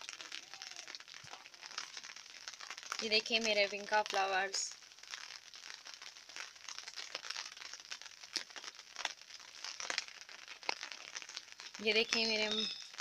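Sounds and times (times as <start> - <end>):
light rain on leaves: 0.0 - 13.0.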